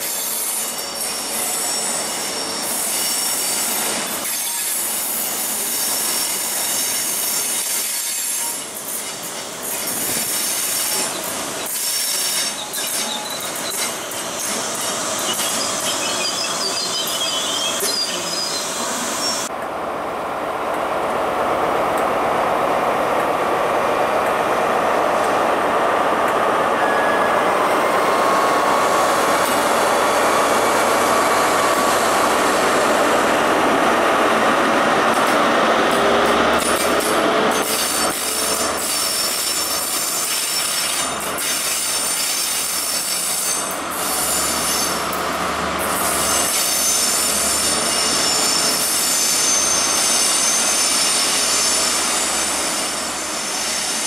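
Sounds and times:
train wheels on rail: 0.0s - 54.0s
wheel squeal: 10.5s - 19.5s.

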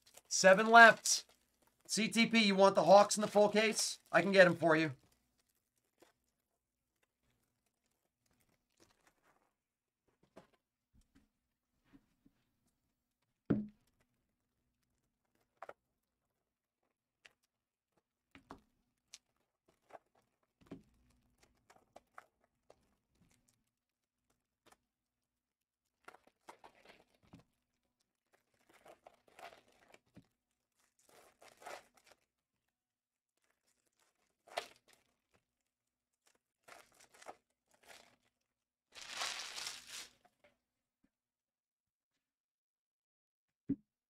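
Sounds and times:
foil wrappers crinkling and tearing: 36.3s - 38.4s, 39.0s - 40.2s.

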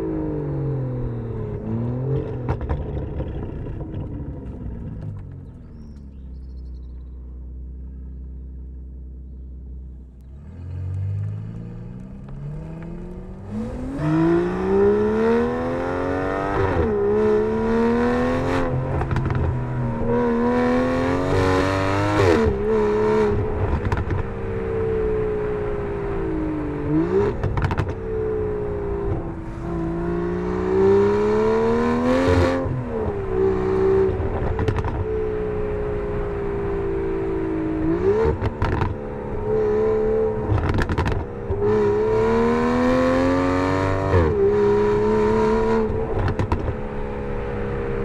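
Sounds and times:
car engine accelerating: 0.0s - 48.0s
exhaust cracks: 2.2s - 6.3s, 40.5s - 41.6s, 46.2s - 46.8s.

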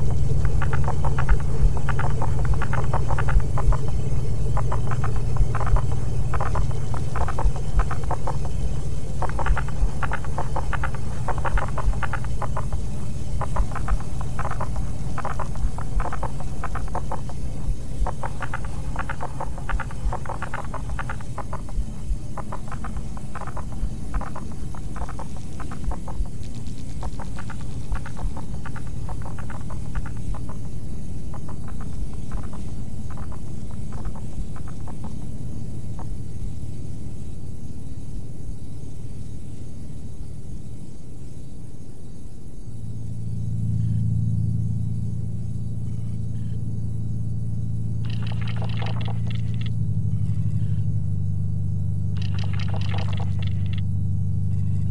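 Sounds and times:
stuttering scratchy clicks: 0.0s - 36.2s, 48.0s - 50.7s, 52.2s - 53.8s
low electronic drone: 0.0s - 40.2s, 42.6s - 54.9s.

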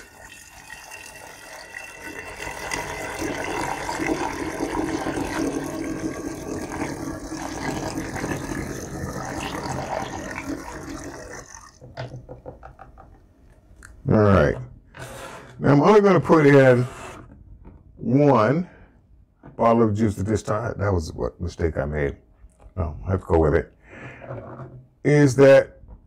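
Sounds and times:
juice pouring through a funnel: 0.0s - 11.9s.

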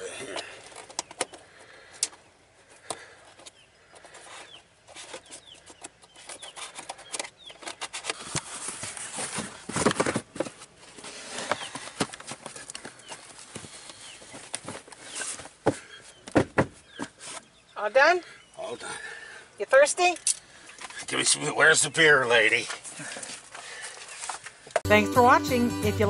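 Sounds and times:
carpet rustling and scraping: 2.9s - 17.6s.

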